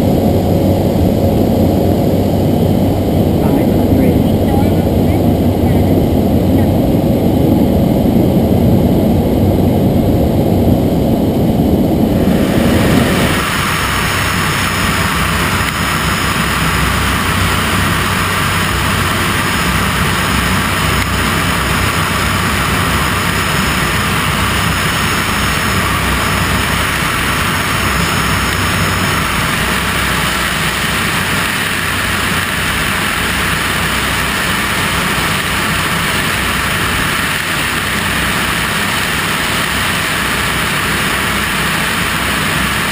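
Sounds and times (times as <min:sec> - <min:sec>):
muffled cabin drone: 0:00.0 - 0:42.9
wind and propeller engine noise: 0:00.0 - 0:42.9.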